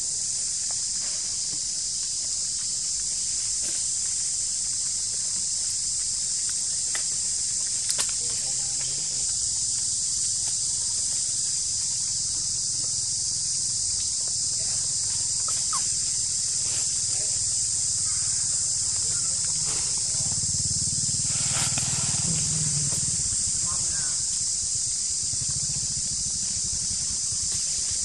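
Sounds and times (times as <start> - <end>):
insect chorus drone: 0.0 - 28.0.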